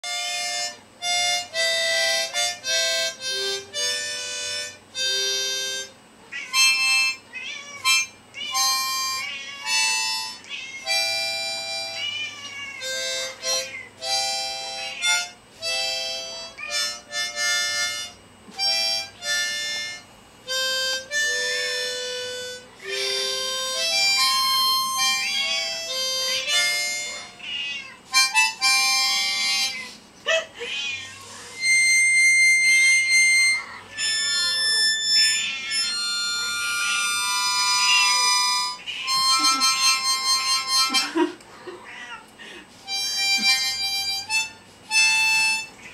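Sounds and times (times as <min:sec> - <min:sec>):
harmonica notes: 0:00.0 - 0:30.1, 0:31.2 - 0:41.4, 0:42.4 - 0:45.9
cats meowing: 0:06.2 - 0:15.4, 0:24.2 - 0:28.6, 0:29.4 - 0:42.8, 0:45.3 - 0:45.9.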